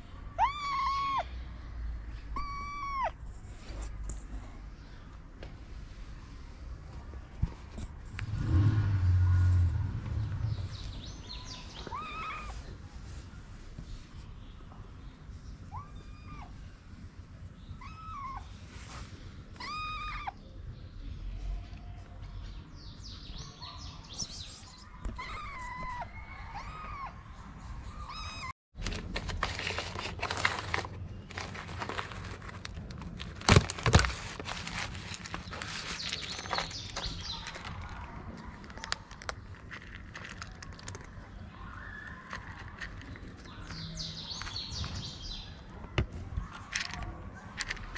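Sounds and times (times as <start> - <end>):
kitten meowing: 0.4 - 1.3, 2.3 - 3.2, 11.8 - 12.6, 19.6 - 20.4, 25.1 - 27.2
plastic food tub rustling and clicking: 28.8 - 41.4.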